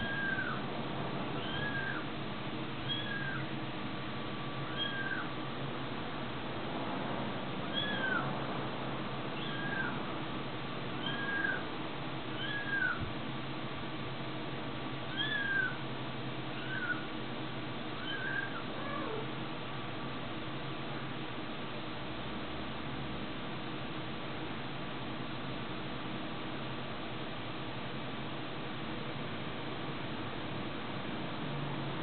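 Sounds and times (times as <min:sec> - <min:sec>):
kitten mewing: 0:00.0 - 0:00.6, 0:01.4 - 0:02.1, 0:02.8 - 0:03.5, 0:04.6 - 0:05.3, 0:07.7 - 0:08.2, 0:09.4 - 0:10.0, 0:11.0 - 0:11.7, 0:12.4 - 0:13.1, 0:15.1 - 0:15.8, 0:16.6 - 0:17.1, 0:18.0 - 0:19.4.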